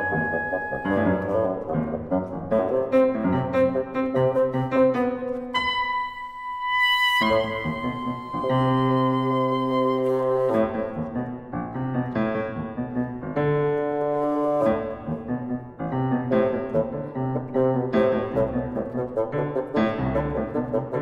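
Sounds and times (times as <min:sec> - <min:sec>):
oboe: 0:00.0 - 0:11.4
bassoon: 0:00.0 - 0:21.0
piano playing quick notes: 0:00.0 - 0:21.0.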